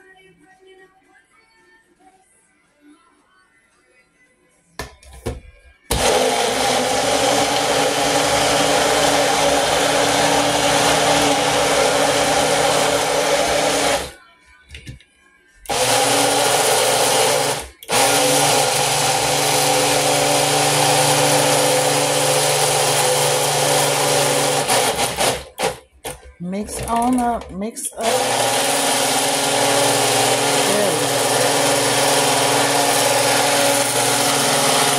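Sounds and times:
blender motor whirring: 0:05.9 - 0:14.2, 0:15.7 - 0:25.8, 0:28.0 - 0:34.9.

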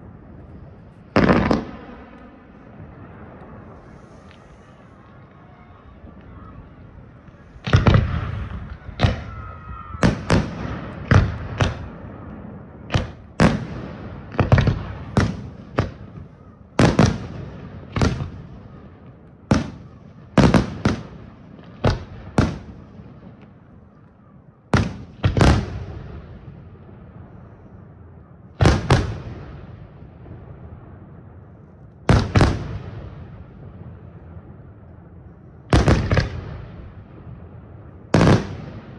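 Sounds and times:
rolling echo of bangs: 0:07.6 - 0:09.4, 0:10.0 - 0:19.8.

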